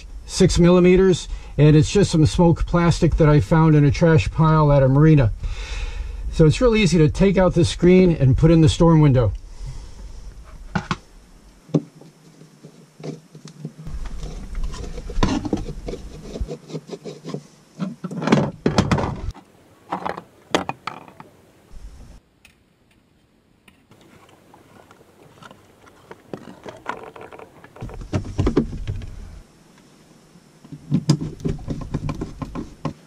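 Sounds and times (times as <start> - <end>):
plastic sheet knocking and clicking: 31.0 - 33.0.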